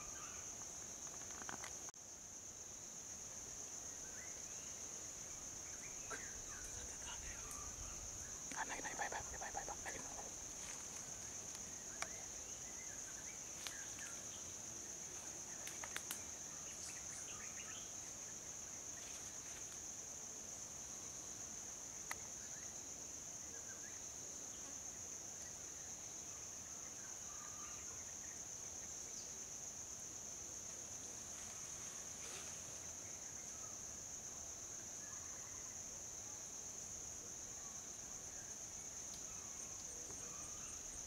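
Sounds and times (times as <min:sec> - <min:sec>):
high-pitched insect drone: 0:05.7 - 0:14.4.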